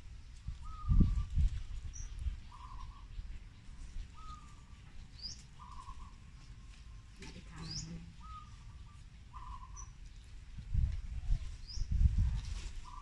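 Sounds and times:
rustling of leaves being handled: 0.0s - 13.0s
birds calling: 0.6s - 10.3s, 12.8s - 13.0s.

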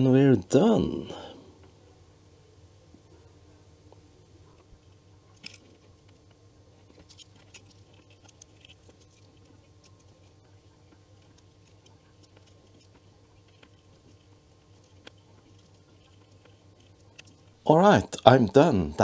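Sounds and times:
low steady hum: 0.0s - 19.0s
flux crackling under soldering iron: 4.5s - 17.7s.

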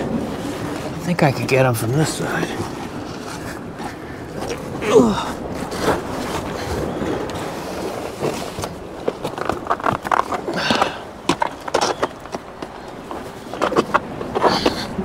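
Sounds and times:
steady rushing noise: 0.0s - 15.0s
knocks and scrapes on rock: 7.8s - 15.0s.

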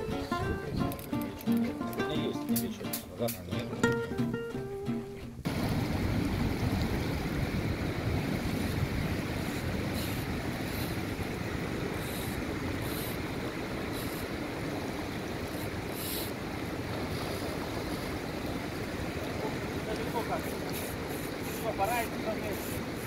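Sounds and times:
wind buffeting microphone: 0.0s - 1.2s, 5.2s - 22.2s
river water rushing: 0.0s - 23.0s.

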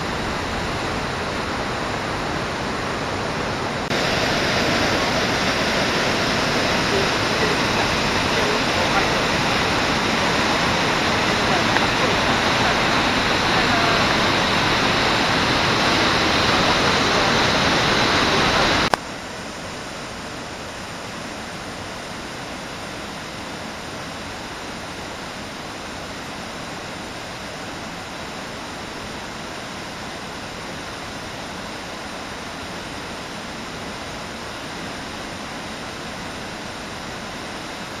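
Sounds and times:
waterfall pouring: 0.0s - 19.0s.

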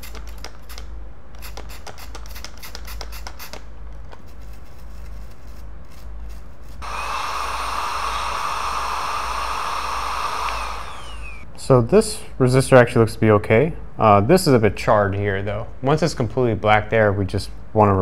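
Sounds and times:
hot air blower hissing: 6.8s - 11.5s.

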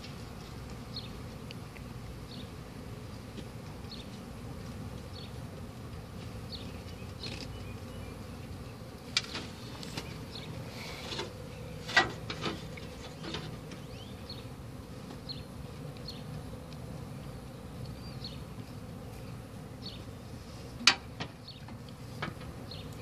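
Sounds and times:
honey bees buzzing: 0.0s - 23.0s.

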